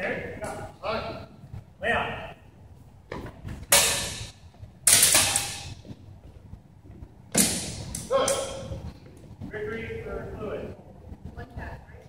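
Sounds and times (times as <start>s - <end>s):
swords clashing: 3.7s - 4.3s, 4.9s - 5.7s, 7.4s - 8.7s.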